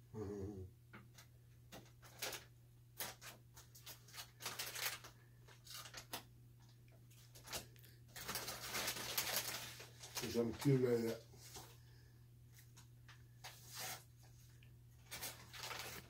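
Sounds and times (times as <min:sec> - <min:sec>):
chip bag crinkling: 0:02.0 - 0:11.7, 0:15.0 - 0:16.0.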